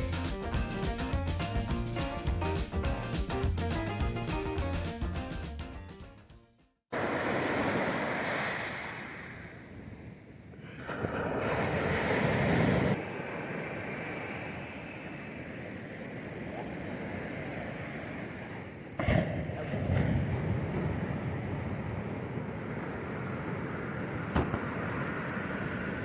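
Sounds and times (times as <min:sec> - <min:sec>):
ocean surf breaking on a beach: 0:06.9 - 0:26.0.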